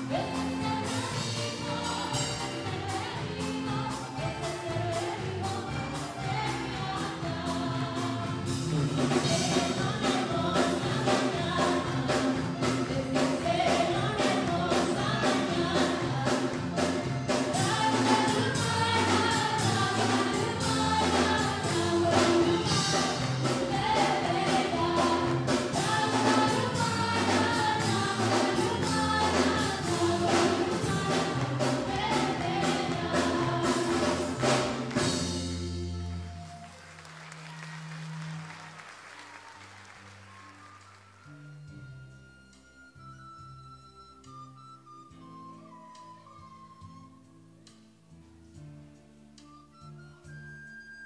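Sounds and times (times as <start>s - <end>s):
congregation singing a hymn: 0.0s - 35.6s
musical accompaniment with steady beat: 0.0s - 51.0s.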